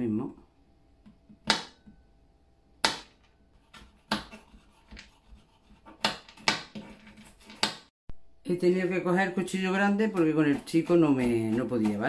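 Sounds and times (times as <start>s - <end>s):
knife chopping on cutting board: 1.4s - 1.8s, 2.8s - 7.9s, 10.0s - 12.0s.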